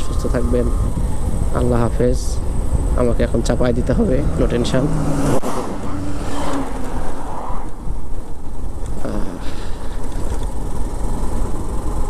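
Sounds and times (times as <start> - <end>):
motorcycle engine running: 0.0 - 12.0
wind rumbling over microphone: 0.0 - 12.0
lorry passing: 2.4 - 10.9.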